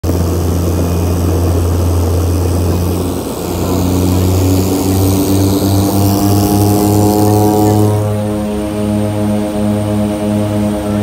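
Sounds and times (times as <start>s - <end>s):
propeller airplane engine droning: 0.0s - 11.0s.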